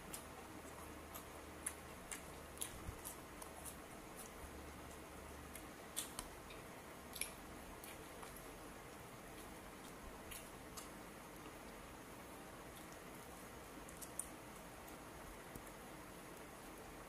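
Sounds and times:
low steady hiss: 0:00.0 - 0:17.0
lettuce crackles and clicks: 0:12.7 - 0:15.8.

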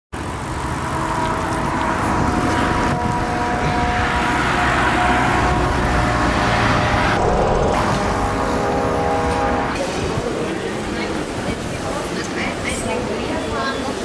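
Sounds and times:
road traffic: 0:00.1 - 0:14.0
wind on microphone: 0:01.2 - 0:07.9.

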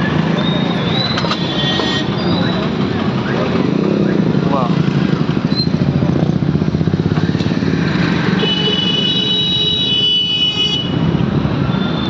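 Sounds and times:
motorcycle engine rumbling: 0:00.0 - 0:09.3
high-pitched vehicle horn: 0:01.4 - 0:02.2, 0:08.4 - 0:11.0.

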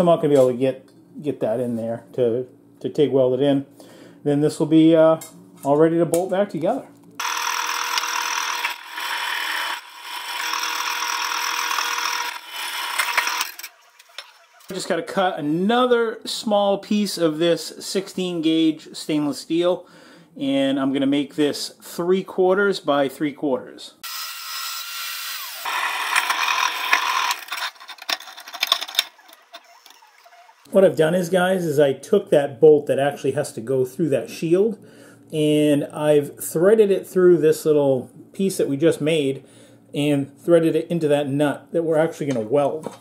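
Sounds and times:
bandsaw cutting steel: 0:07.2 - 0:14.7, 0:24.0 - 0:30.7
drill press grinding metal: 0:07.2 - 0:14.7, 0:24.0 - 0:30.7.

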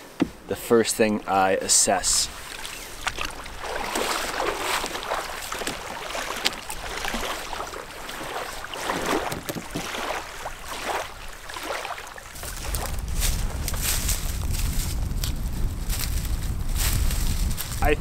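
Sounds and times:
waves lapping against canoe: 0:00.0 - 0:15.1
wind: 0:00.0 - 0:18.0.

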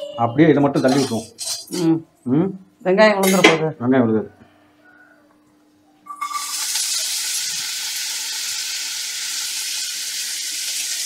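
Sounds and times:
vegetables sizzling in hot oil: 0:06.2 - 0:11.0.

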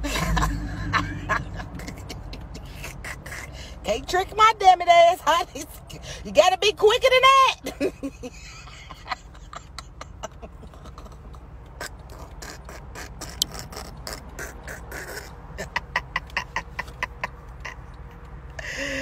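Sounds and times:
woman laughing: 0:00.0 - 0:03.7, 0:07.6 - 0:11.4, 0:15.0 - 0:17.8
car driving rumble: 0:00.0 - 0:19.0.

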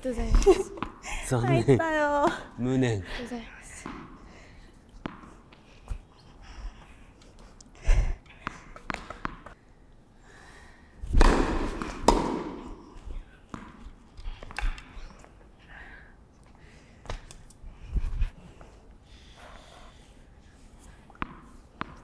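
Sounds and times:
tennis ball bouncing on hard court: 0:03.8 - 0:04.2, 0:05.0 - 0:05.5, 0:08.4 - 0:09.6, 0:11.1 - 0:13.9, 0:21.1 - 0:22.0.

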